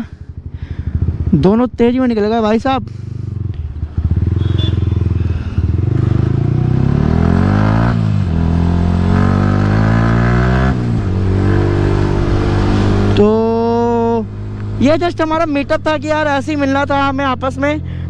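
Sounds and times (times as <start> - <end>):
motorcycle engine accelerating: 0.0 - 18.0
wind noise: 10.2 - 13.6.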